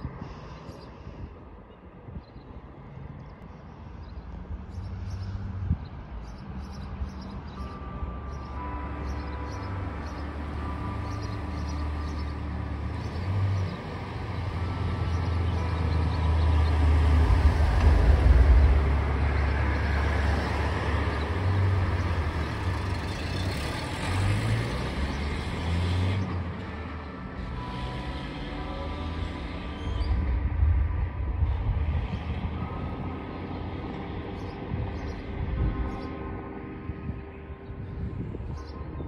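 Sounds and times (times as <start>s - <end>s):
road traffic passing: 0.0s - 39.0s
faint church bell ringing: 7.3s - 17.8s, 26.6s - 31.2s, 32.0s - 39.0s.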